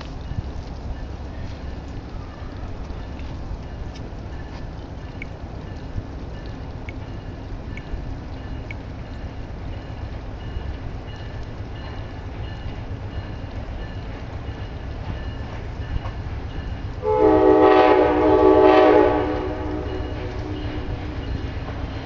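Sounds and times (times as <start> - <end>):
train rumbling: 0.0 - 22.0
locomotive air horn: 17.0 - 21.3.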